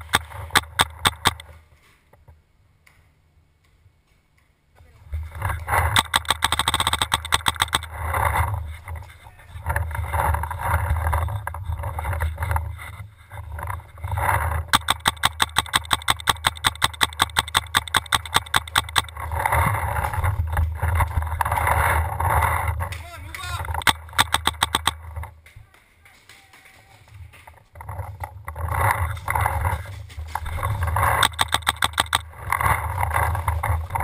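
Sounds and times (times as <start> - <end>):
paintball marker firing rapidly: 0.0 - 1.4, 5.7 - 8.0, 14.5 - 20.1, 23.6 - 25.1, 28.7 - 34.0.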